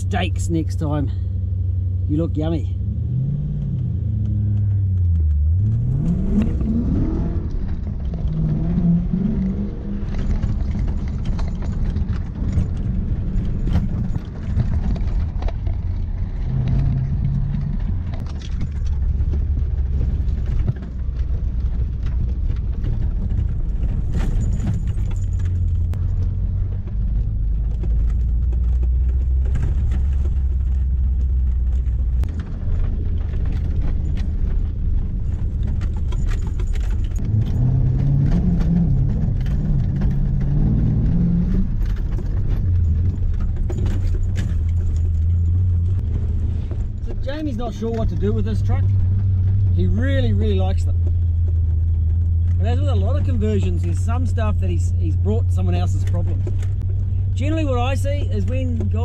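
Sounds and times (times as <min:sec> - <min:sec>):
car engine revving: 0:00.0 - 0:59.0
rattles from truck: 0:02.2 - 0:59.0.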